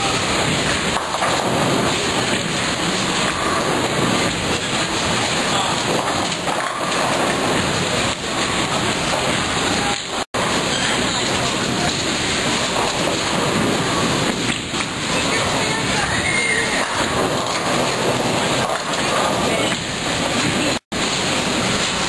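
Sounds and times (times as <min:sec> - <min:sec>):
bowling balls rolling: 0:00.0 - 0:22.0
bowling pins clattering: 0:00.4 - 0:09.7, 0:11.4 - 0:20.8
crowd voices: 0:15.0 - 0:20.8.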